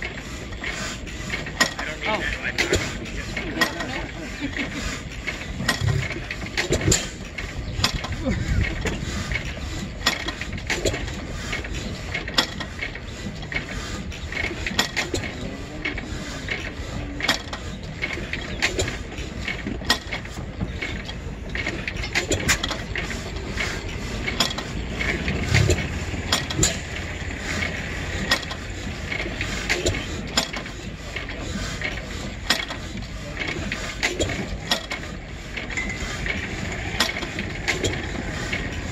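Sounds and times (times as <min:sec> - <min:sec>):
engine mechanical clicks and clanks: 0:00.0 - 0:38.9
low engine rumble: 0:00.0 - 0:38.9.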